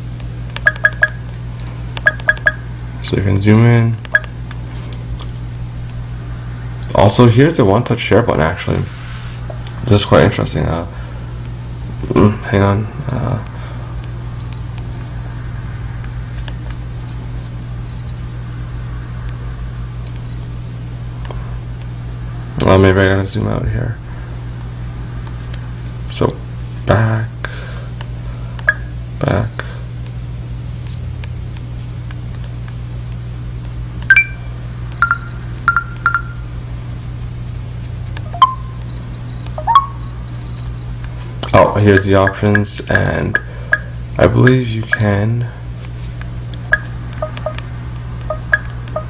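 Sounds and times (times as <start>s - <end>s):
steady low hum: 0.0s - 49.0s
camcorder electronic beeps: 0.6s - 1.2s, 2.1s - 2.6s, 34.1s - 36.4s, 38.3s - 40.0s, 46.7s - 47.6s, 48.3s - 49.0s.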